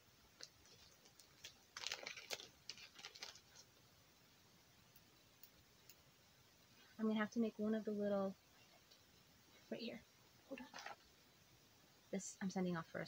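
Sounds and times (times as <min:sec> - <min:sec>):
packaging rustling and crinkling: 0:00.4 - 0:03.8, 0:10.5 - 0:11.0.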